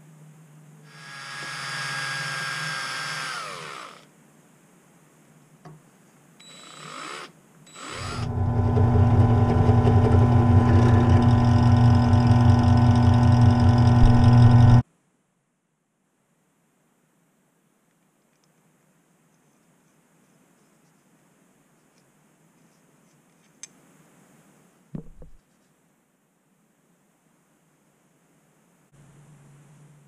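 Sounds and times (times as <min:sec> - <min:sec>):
drill press motor drilling metal: 0:01.0 - 0:04.0, 0:06.5 - 0:14.8.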